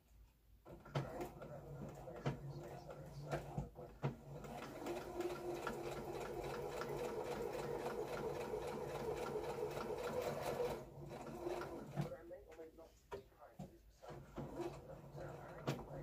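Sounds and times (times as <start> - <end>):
sewing machine running: 4.2 - 12.1, 14.2 - 15.8.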